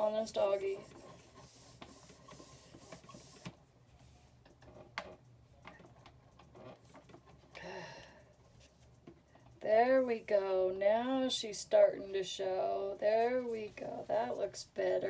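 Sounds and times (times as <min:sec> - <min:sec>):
stamp scrubbing on ink pad: 0:00.4 - 0:03.5.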